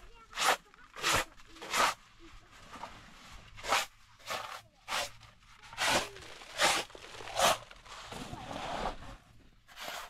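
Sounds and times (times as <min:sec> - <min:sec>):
hand broom sweeping canvas: 0:00.2 - 0:10.0.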